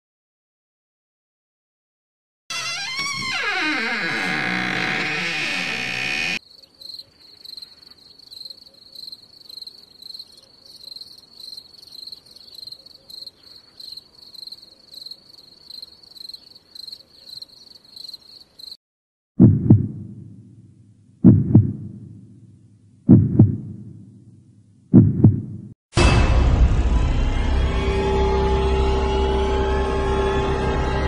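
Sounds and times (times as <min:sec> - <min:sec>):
crickets chirping: 0:06.4 - 0:18.8
deep thud: 0:25.0 - 0:27.0
music: 0:26.0 - 0:31.0.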